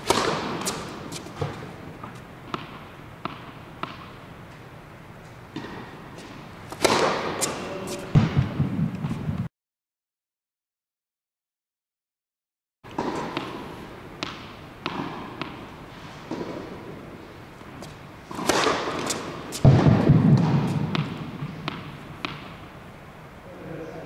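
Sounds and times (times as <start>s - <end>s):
tennis ball bouncing on hard court: 0.0s - 4.2s, 5.5s - 9.3s, 12.9s - 15.7s, 16.3s - 16.8s, 17.8s - 22.6s.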